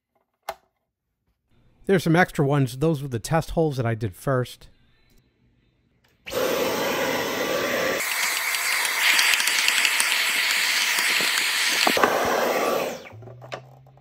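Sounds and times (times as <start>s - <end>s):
stick vacuum running: 6.3s - 13.2s.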